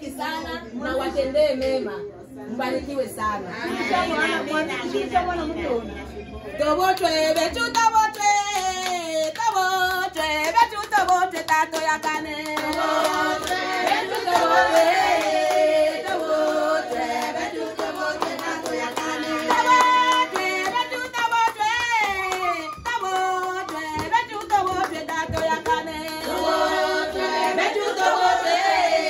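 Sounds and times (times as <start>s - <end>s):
singing with music: 6.5s - 29.0s
hands clapping a beat: 6.9s - 28.5s.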